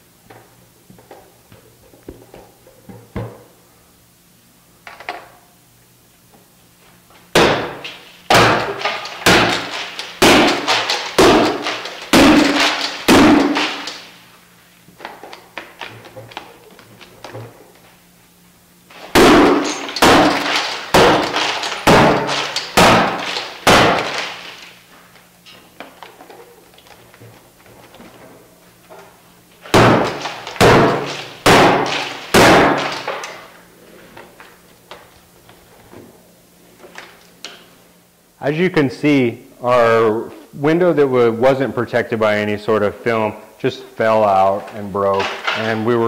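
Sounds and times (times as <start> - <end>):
bat striking glass pane: 7.4 - 14.1, 19.1 - 24.6, 29.7 - 33.3
glass crunching: 8.6 - 14.1, 19.2 - 24.7.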